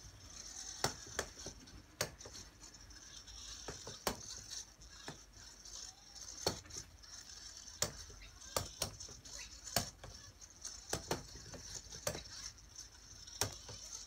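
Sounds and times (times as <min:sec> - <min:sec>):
robot balls rolling: 0:00.0 - 0:14.0
robot balls knocking against wood: 0:03.6 - 0:05.2, 0:07.7 - 0:10.2, 0:10.8 - 0:12.4.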